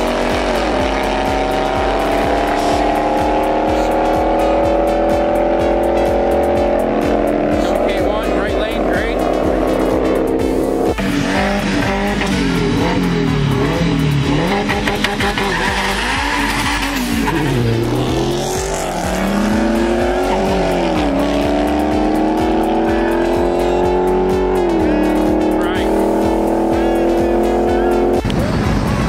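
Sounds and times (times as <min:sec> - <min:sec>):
racing car engines accelerating: 0:00.0 - 0:29.0
tire noise: 0:00.0 - 0:29.0.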